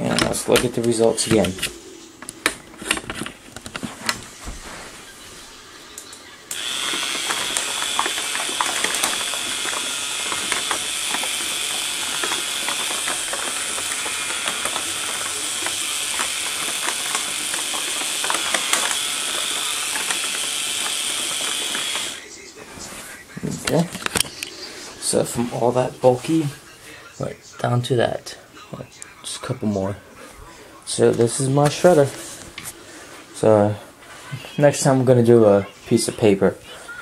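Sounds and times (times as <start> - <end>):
plastic gears clicking: 6.5 - 22.2
paper shredder motor whining: 6.5 - 22.3.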